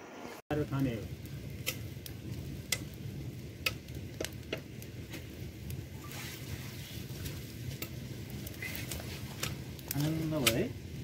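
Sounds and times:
wood fire crackling and popping: 0.5s - 11.0s
sticks rustling: 6.0s - 10.6s.

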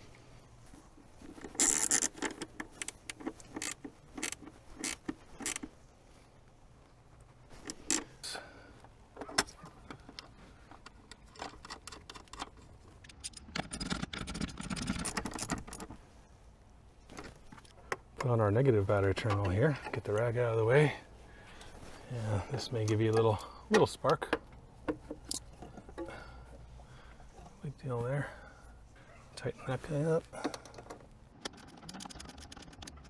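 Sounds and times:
ratchet wrench clicking: 1.6s - 2.3s, 3.5s - 5.7s.

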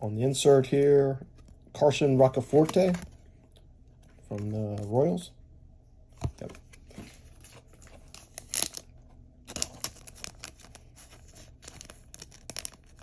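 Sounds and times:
plastic card sleeve crinkling: 1.4s - 3.2s, 6.3s - 13.0s.

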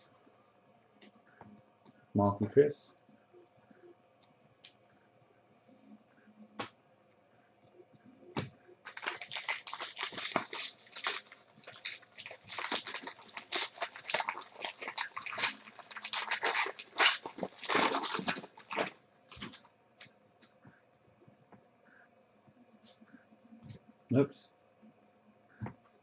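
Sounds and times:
foil wrapper crinkling and tearing: 8.9s - 19.6s.

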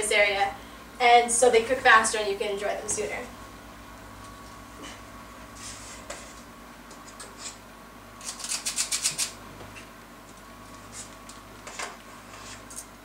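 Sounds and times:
faint steady hum: 0.0s - 13.0s
utensils scraping dough: 7.1s - 7.6s.

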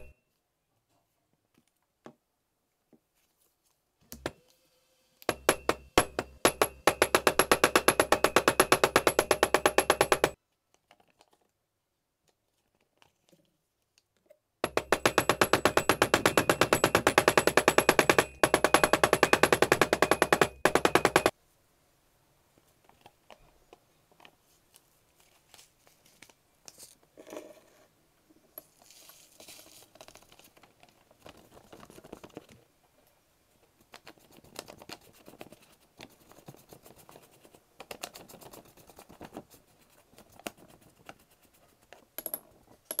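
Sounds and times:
hammer tapping rapidly: 5.3s - 10.4s, 14.6s - 21.3s
paper rustling: 24.5s - 27.0s.

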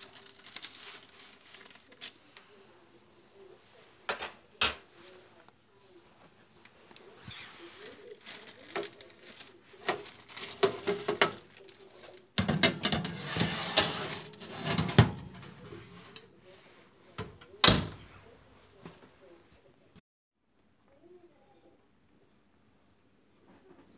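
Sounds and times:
tray and paper rustling: 0.0s - 2.5s, 6.9s - 16.3s
oven door banging shut: 12.4s - 15.7s, 17.2s - 18.0s
metal baking tray sliding: 12.6s - 16.2s.

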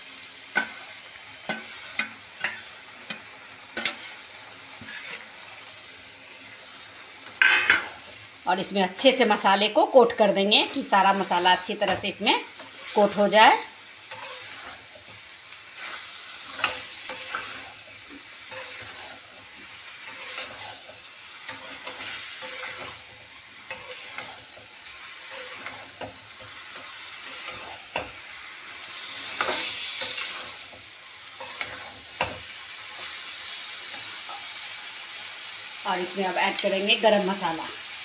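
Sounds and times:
food sizzling in a pan: 0.0s - 38.0s
metal spatula scraping pan: 0.5s - 5.4s, 14.0s - 28.2s, 28.9s - 33.1s.

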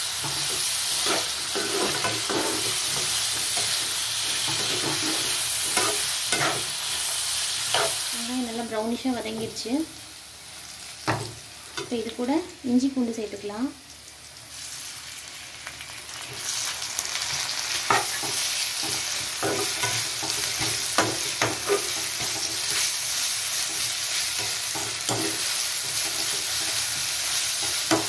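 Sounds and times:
onions sizzling in hot oil: 0.0s - 28.0s
spatula scraping and knocking pan: 0.2s - 6.8s, 17.9s - 22.9s, 23.6s - 28.0s.

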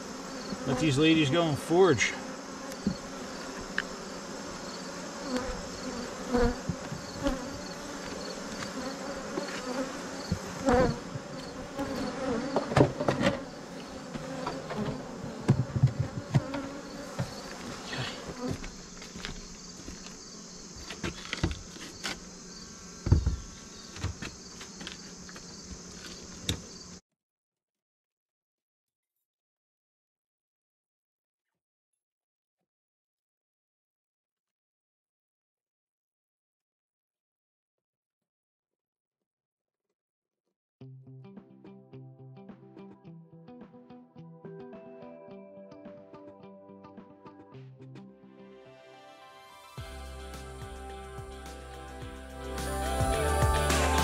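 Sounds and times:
bees buzzing: 0.0s - 27.0s, 49.8s - 54.0s
wooden knocks and scrapes: 10.3s - 20.2s, 20.8s - 22.3s.

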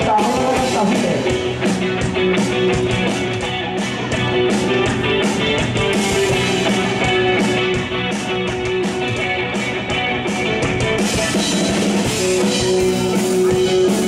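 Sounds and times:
drum kit cymbal beat: 0.0s - 14.0s
electric guitar lead line: 0.0s - 14.0s.

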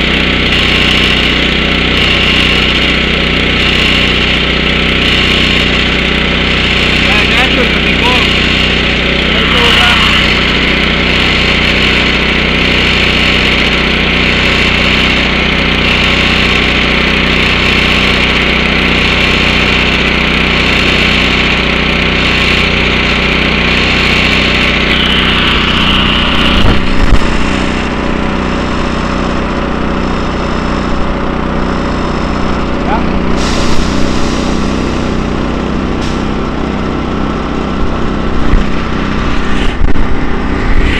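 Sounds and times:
air compressor engine running: 0.0s - 40.9s
air hissing through hose: 33.3s - 35.2s.

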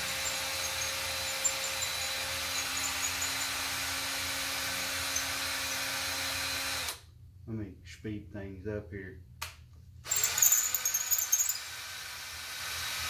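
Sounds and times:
electric drill whining: 0.0s - 7.0s, 10.1s - 13.0s.

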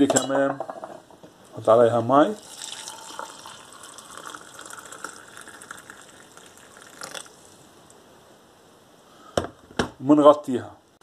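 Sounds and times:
water pouring into ceramic mug: 2.3s - 7.6s.

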